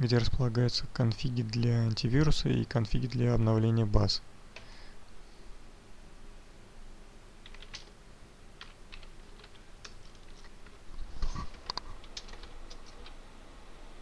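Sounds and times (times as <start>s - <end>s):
keyboard keys clicking: 7.4s - 7.9s, 8.6s - 10.8s, 11.5s - 13.2s.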